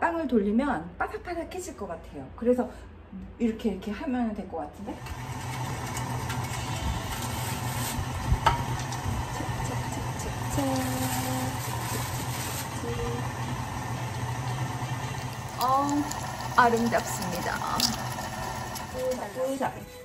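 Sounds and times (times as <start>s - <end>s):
mixer motor hum grinding meat: 5.0s - 19.8s.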